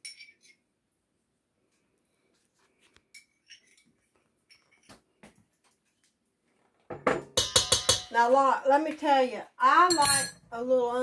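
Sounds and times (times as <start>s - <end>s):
spoon clinking cup and bowl: 0.0s - 0.6s, 7.1s - 8.1s, 9.9s - 10.4s.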